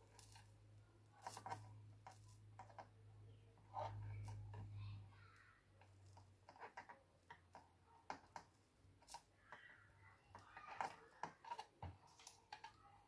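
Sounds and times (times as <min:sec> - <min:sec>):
small tools clicking and tapping: 0:00.0 - 0:00.5, 0:01.2 - 0:03.0, 0:05.8 - 0:13.0.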